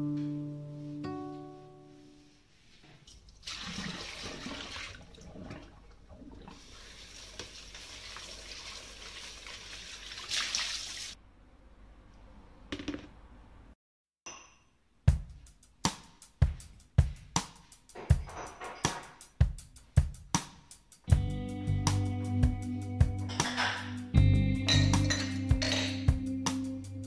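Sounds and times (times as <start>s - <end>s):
tap water running into basin: 3.4s - 11.2s.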